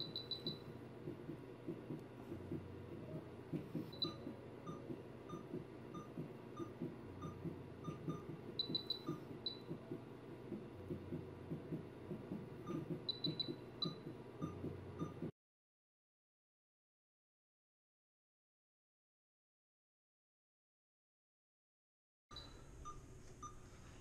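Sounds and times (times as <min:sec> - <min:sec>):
monitor beeping: 0:00.0 - 0:15.3.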